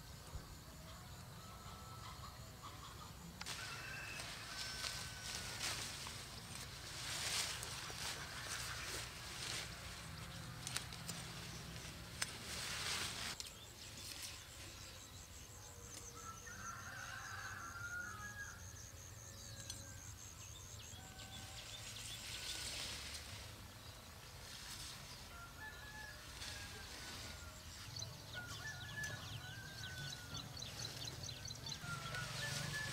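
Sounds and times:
rustling: 3.4 - 14.7.

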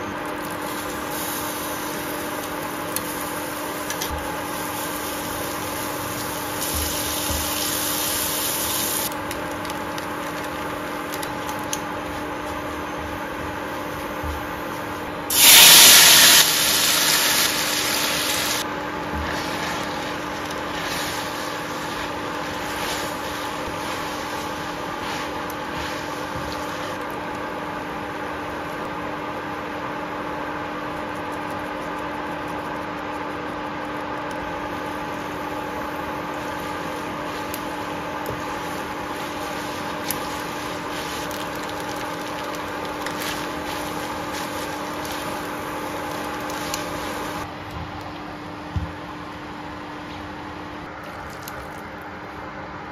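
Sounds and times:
induction cooktop hum: 0.0 - 52.9
hot oil sizzling in a pan: 0.2 - 27.4, 34.5 - 47.5.

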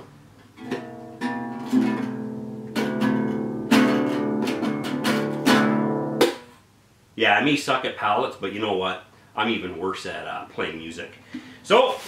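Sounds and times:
classical guitar chords strummed: 0.6 - 6.5.

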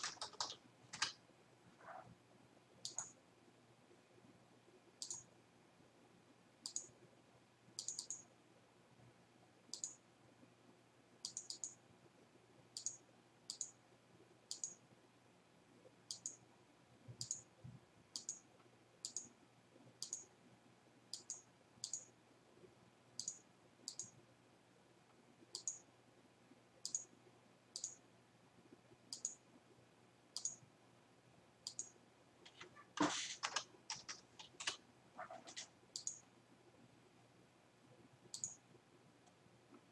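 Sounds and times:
computer mouse clicking: 0.0 - 1.2, 2.8 - 3.2, 5.0 - 5.3, 6.6 - 7.0, 7.8 - 8.3, 9.7 - 10.0, 11.2 - 11.8, 12.8 - 13.8, 14.5 - 14.8, 16.1 - 16.4, 17.1 - 17.5, 18.1 - 19.3, 20.0 - 20.3, 21.1 - 22.1, 23.2 - 24.2, 25.5 - 25.9, 26.8 - 27.1, 27.8 - 28.0, 29.1 - 29.4, 30.4 - 30.6, 31.6 - 36.2, 38.3 - 38.6
keyboard keystrokes: 0.0 - 1.2, 32.5 - 36.2.

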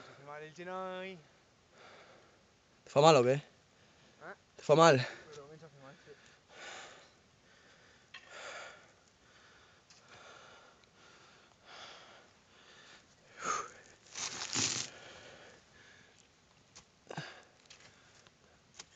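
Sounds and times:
person breathing: 6.0 - 16.2, 17.1 - 18.3.

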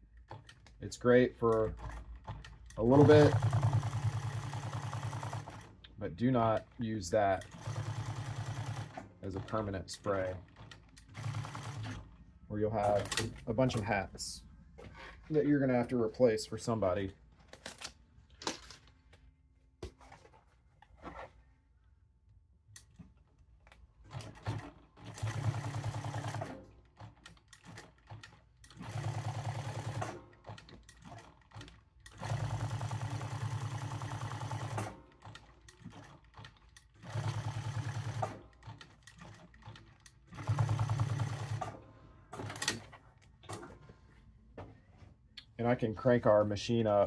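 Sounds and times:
sewing machine stitching: 1.5 - 5.7, 7.2 - 12.1, 24.0 - 41.8.

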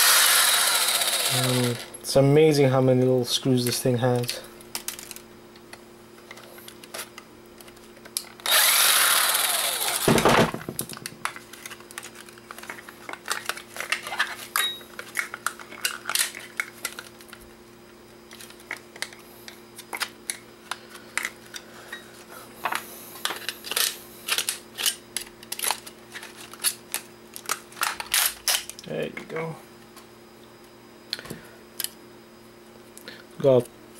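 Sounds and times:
impact driver running: 0.0 - 1.9, 8.4 - 10.7.

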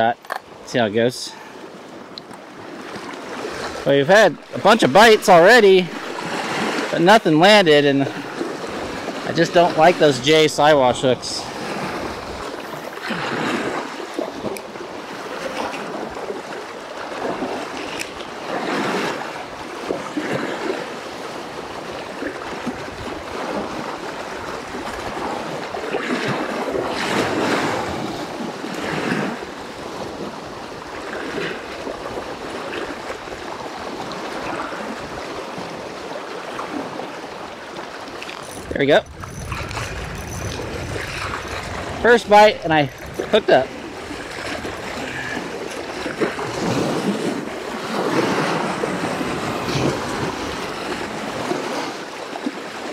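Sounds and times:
waves lapping on rocky shore: 0.0 - 52.9
wind gusting on microphone: 3.3 - 14.5, 38.0 - 52.0.

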